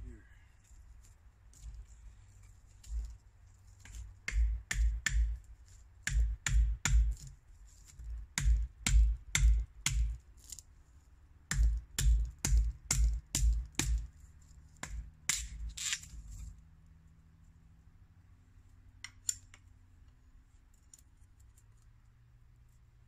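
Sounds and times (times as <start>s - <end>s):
knife chopping wooden branch: 3.8s - 5.4s, 6.0s - 7.4s, 8.4s - 10.2s, 11.5s - 14.1s, 14.7s - 16.1s.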